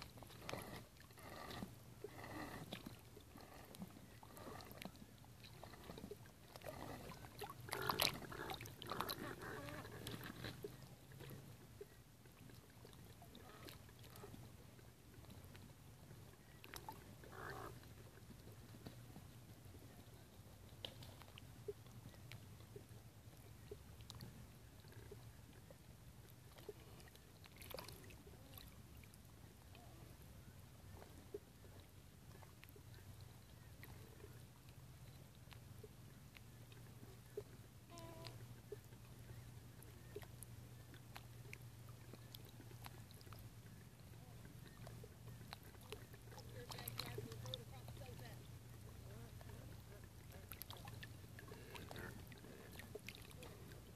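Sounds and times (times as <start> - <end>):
faint low hum: 0.0 - 53.9
faint ticks: 32.3 - 39.2.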